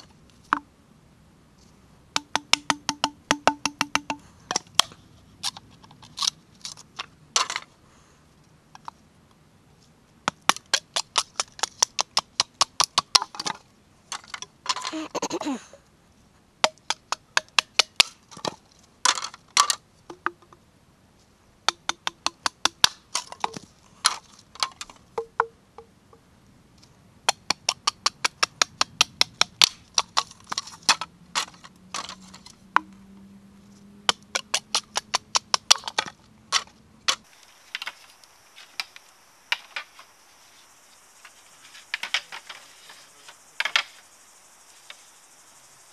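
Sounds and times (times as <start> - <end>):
blade chopping bamboo: 2.2 - 4.7, 16.6 - 18.5, 34.1 - 37.3.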